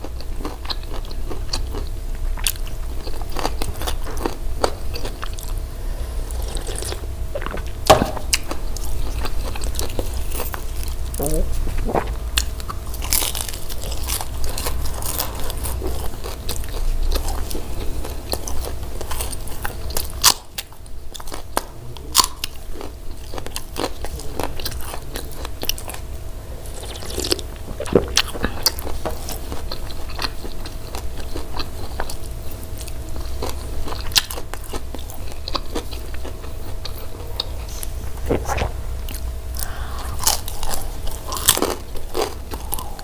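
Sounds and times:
crunchy chewing of flatbread: 0.0 - 43.0.

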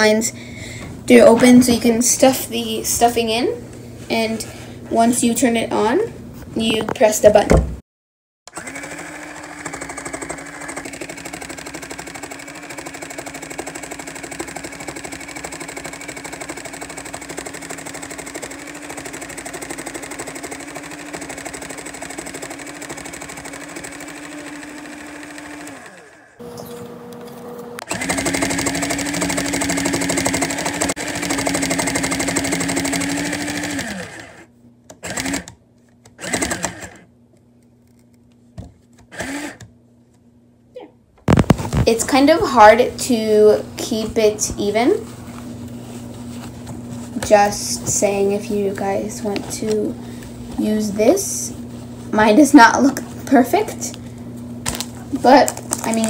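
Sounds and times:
toy sewing machine motor humming: 8.5 - 26.5, 27.9 - 35.6, 36.2 - 37.0, 39.1 - 39.7.

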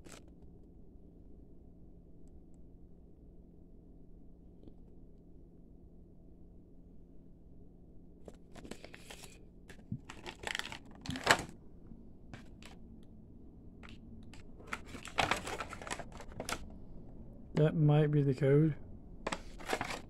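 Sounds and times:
plastic packaging crinkling: 8.3 - 11.6, 12.4 - 12.8, 13.8 - 16.8, 19.3 - 20.0.

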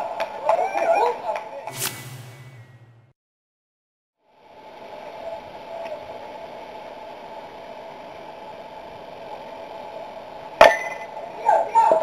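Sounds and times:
outdoor ballfield background noise: 0.0 - 3.1.

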